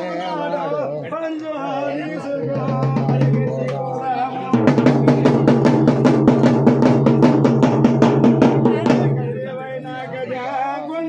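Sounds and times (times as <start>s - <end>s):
fast even drumming: 2.4s - 9.5s.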